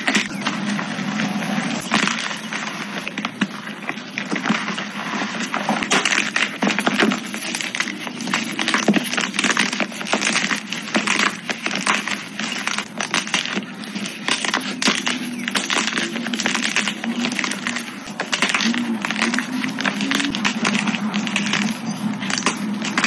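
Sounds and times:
chalk crunching and crackling: 0.0 - 23.0.

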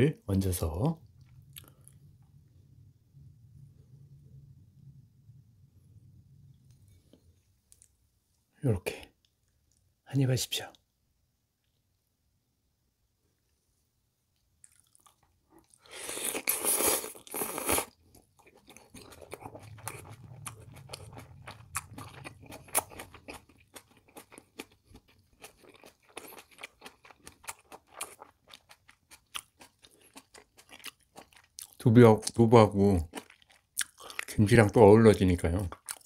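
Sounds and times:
close chewing noise: 1.0 - 2.1, 14.4 - 32.4, 33.0 - 34.4, 35.6 - 36.0.

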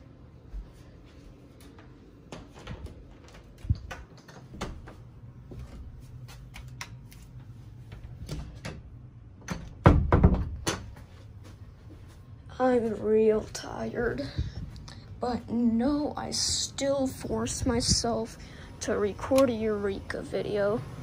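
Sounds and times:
footsteps walking: 0.3 - 8.3, 10.8 - 15.7.

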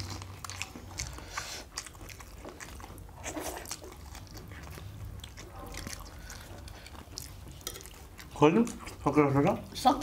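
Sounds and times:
people chewing food: 0.0 - 10.0.

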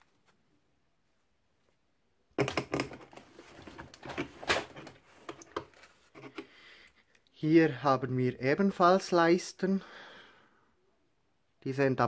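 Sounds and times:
rustling of wooden strips: 2.5 - 6.4.

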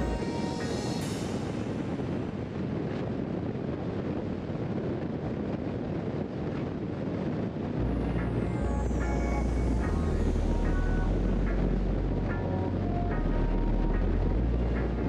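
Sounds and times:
background music: 0.0 - 2.5, 7.8 - 15.0
wind on microphone: 0.0 - 15.0.

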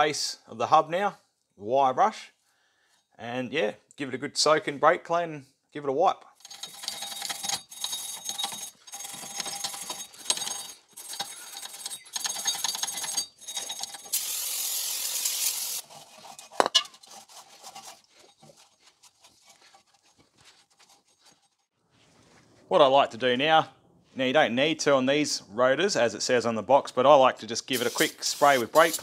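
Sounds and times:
wire brush scrubbing metal: 7.4 - 21.7, 27.8 - 29.0
aerosol spray hissing: 14.1 - 15.8, 27.8 - 29.0
faint wiping: 15.8 - 22.7.

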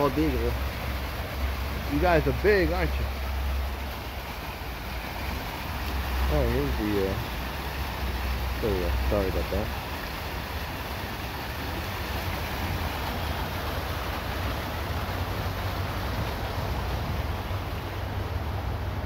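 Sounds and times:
highway traffic: 0.0 - 19.0.

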